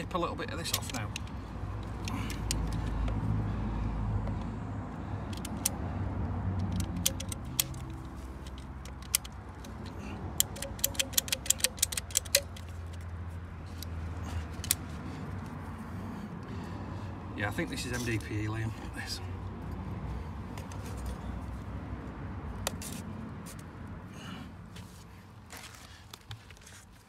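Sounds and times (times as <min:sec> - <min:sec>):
ratchet pipe cutter clicking: 0:00.6 - 0:03.2, 0:05.3 - 0:05.8, 0:06.6 - 0:13.1, 0:14.5 - 0:14.9.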